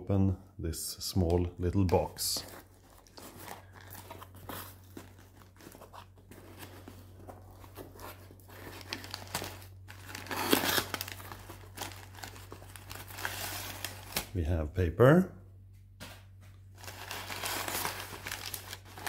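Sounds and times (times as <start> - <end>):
packing paper rustling: 1.8 - 14.3, 16.7 - 19.0.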